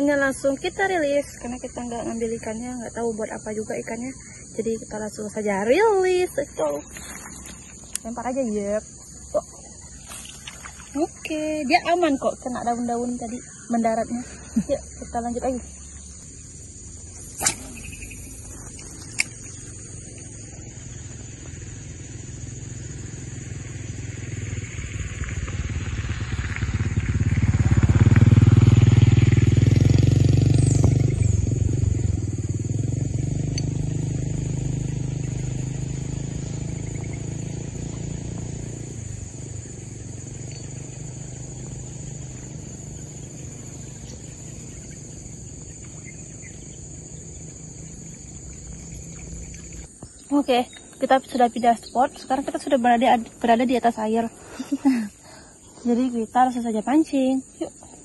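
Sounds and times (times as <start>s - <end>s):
high-pitched insect drone: 0.0s - 58.0s
motorcycle passing by: 0.0s - 58.0s.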